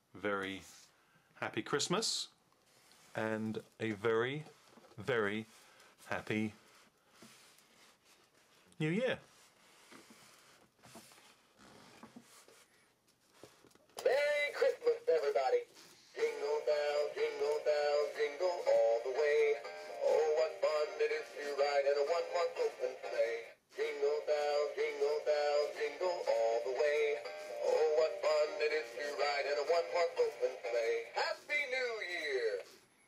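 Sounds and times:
toy singing over music: 16.2 - 32.7.

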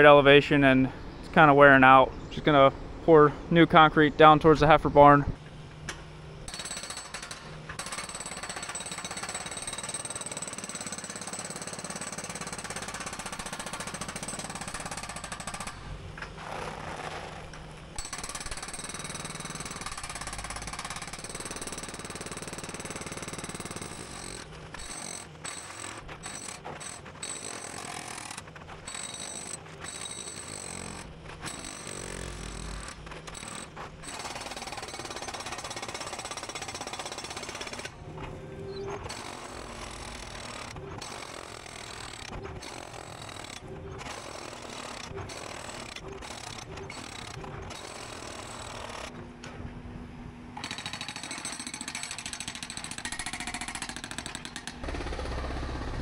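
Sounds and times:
hydraulic breaker hammering concrete: 6.5 - 15.8, 16.4 - 38.0, 39.0 - 49.1, 50.6 - 56.0
machine engine running: 54.8 - 56.0.

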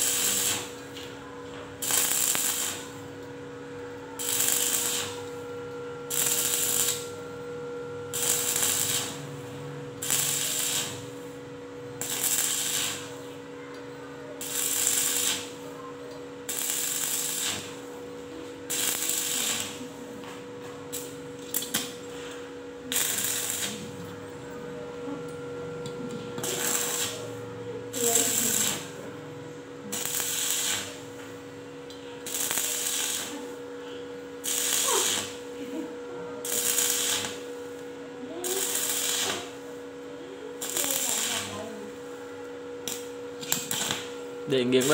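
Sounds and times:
welding arc crackling: 0.0 - 1.1, 1.8 - 3.2, 4.0 - 5.4, 6.1 - 7.3, 8.0 - 13.3, 14.4 - 15.7, 16.4 - 17.9, 18.7 - 19.9, 20.9 - 22.1, 22.8 - 24.0, 26.4 - 29.1, 29.8 - 31.2, 32.2 - 33.6, 34.4 - 35.6, 36.4 - 37.8, 38.4 - 39.6, 40.6 - 41.9, 42.8 - 44.9.

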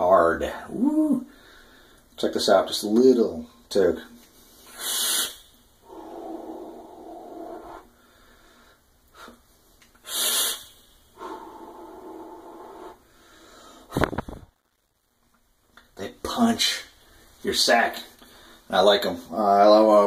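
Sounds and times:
hissing exhaled breaths: 4.6 - 9.4, 10.0 - 14.1.

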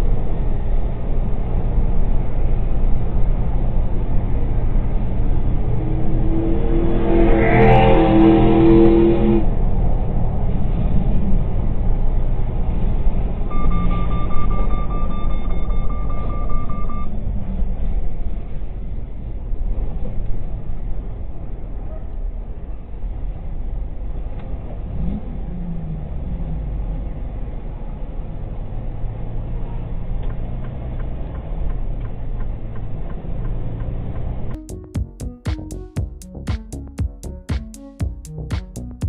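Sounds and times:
truck passing alongside: 0.0 - 14.9
vehicle engine rumble: 0.0 - 16.1.

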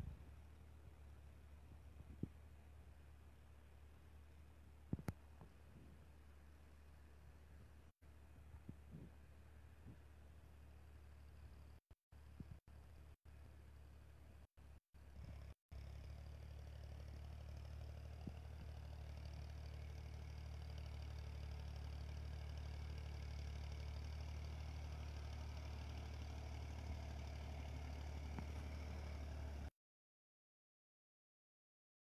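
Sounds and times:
tractor diesel engine running: 15.0 - 29.7.

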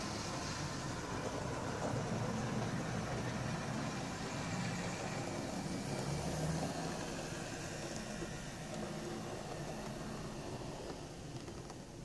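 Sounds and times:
wheels rumbling on rails: 0.0 - 12.0
model train motor whirring: 2.4 - 12.0.

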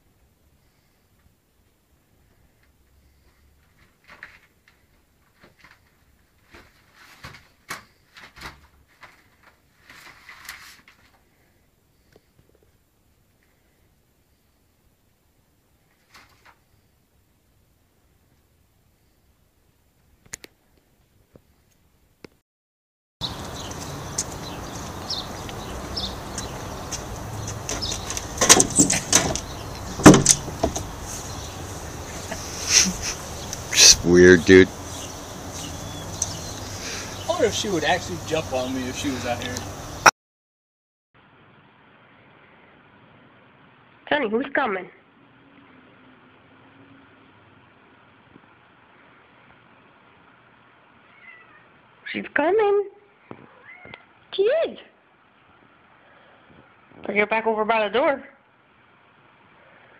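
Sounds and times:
paper rustling: 3.7 - 11.3
sharp knocks and clatters: 26.4 - 31.0
steady background hiss: 28.1 - 40.1.

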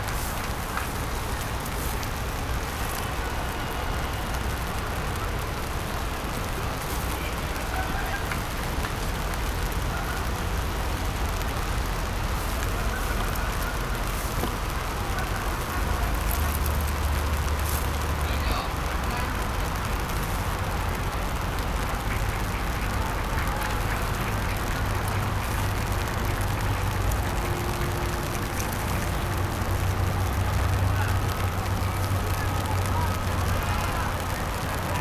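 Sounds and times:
constant hiss: 0.0 - 35.0
distant traffic rumble: 0.0 - 35.0.

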